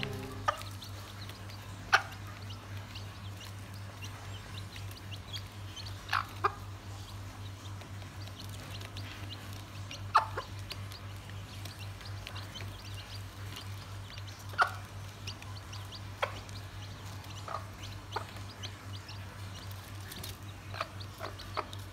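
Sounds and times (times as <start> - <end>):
hen clucking: 0.0 - 3.4, 4.0 - 7.4, 11.7 - 21.9
chicks peeping: 0.0 - 21.9.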